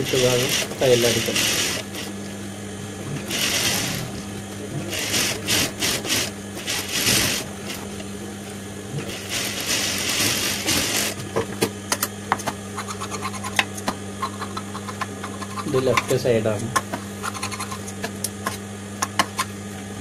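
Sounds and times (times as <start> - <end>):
sewing machine stitching: 0.0 - 2.1, 3.2 - 4.2, 4.8 - 7.9, 9.0 - 11.2
motor humming: 0.0 - 20.0.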